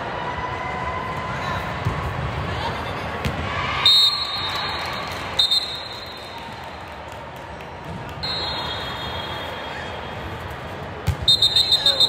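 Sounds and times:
hubbub of busy gym: 0.0s - 12.0s
referee's whistle blasts: 5.4s - 6.3s, 8.2s - 9.7s, 11.2s - 12.0s.

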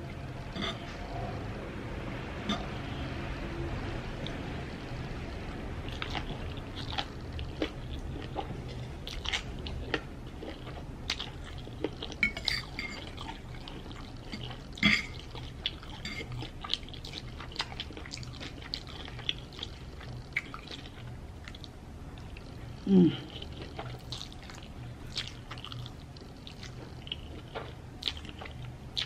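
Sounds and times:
chewing and slurping noodles: 5.9s - 22.6s, 23.3s - 29.0s.

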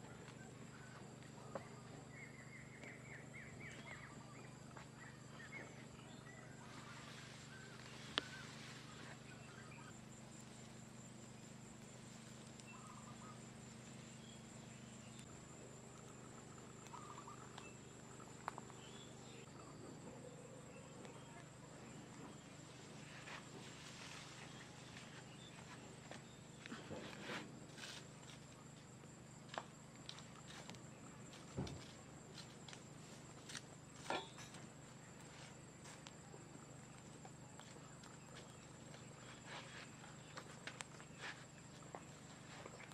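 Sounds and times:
birds chirping: 0.0s - 27.1s
steady low hum: 0.0s - 42.9s.

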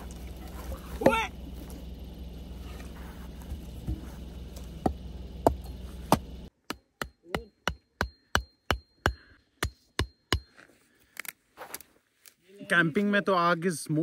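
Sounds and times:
steady low hum: 0.0s - 11.3s
hatchet chopping wood: 4.8s - 10.5s
hatchet striking wooden stake: 4.8s - 10.7s.

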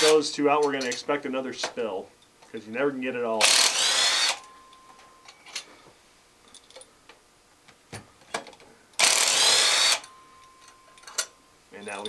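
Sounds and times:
hand tools tapping metal: 0.0s - 1.8s, 10.0s - 12.0s
power tool whining: 3.4s - 4.5s, 9.0s - 10.2s.

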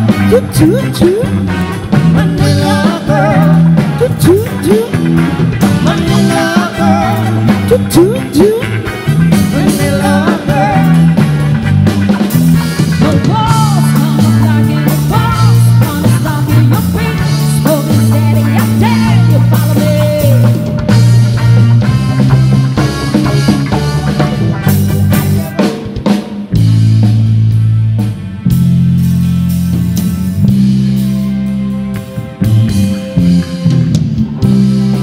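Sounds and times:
live pop-rock band: 0.0s - 35.0s
person singing: 0.1s - 1.4s, 2.1s - 11.4s, 12.9s - 21.0s.

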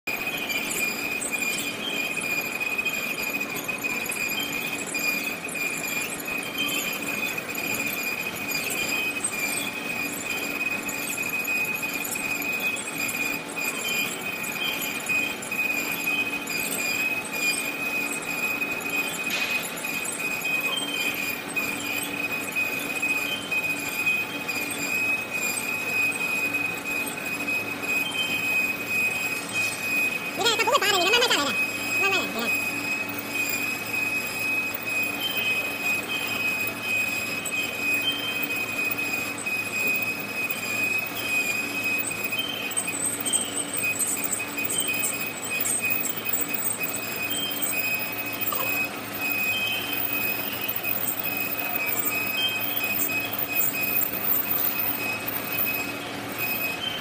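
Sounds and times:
machine running hum: 0.1s - 56.9s
band saw blade squealing: 0.1s - 57.0s.

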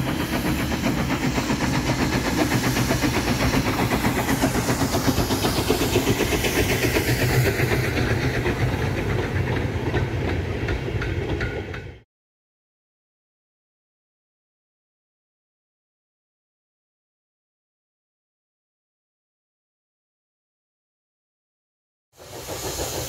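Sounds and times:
steam locomotive exhaust beats: 0.0s - 12.0s, 22.2s - 23.0s.

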